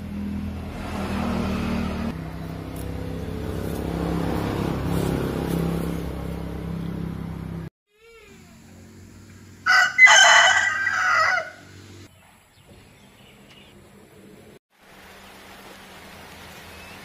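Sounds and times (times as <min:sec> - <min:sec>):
rooster crowing: 0:09.6 - 0:11.8.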